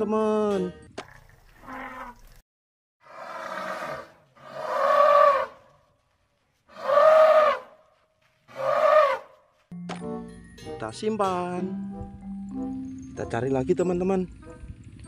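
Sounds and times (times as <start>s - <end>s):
elephant trumpeting: 3.1s - 5.7s, 6.7s - 7.8s, 8.5s - 9.3s.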